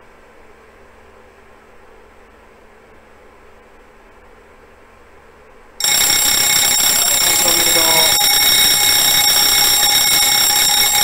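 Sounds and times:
fire alarm bell ringing: 5.8 - 11.0.

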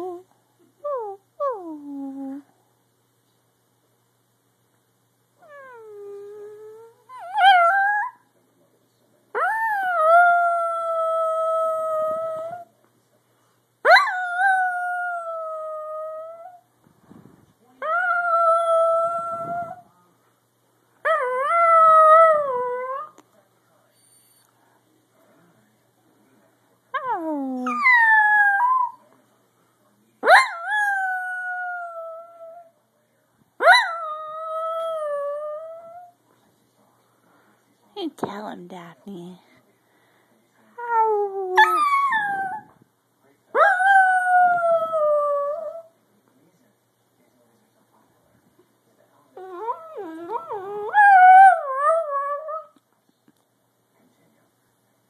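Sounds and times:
dog howling: 43.6 - 45.9, 49.4 - 52.8.

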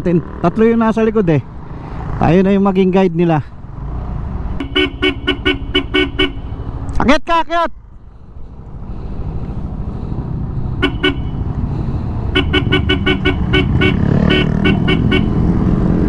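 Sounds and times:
motorcycle engine and wind: 0.0 - 7.2, 7.8 - 16.0
vehicle horn short toots: 4.6 - 6.6, 10.8 - 11.4, 12.3 - 15.3.

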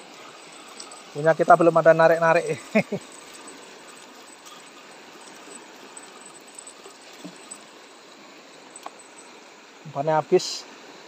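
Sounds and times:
faint small ticks: 0.0 - 1.1, 3.0 - 9.4
flowing river water: 0.0 - 11.0.

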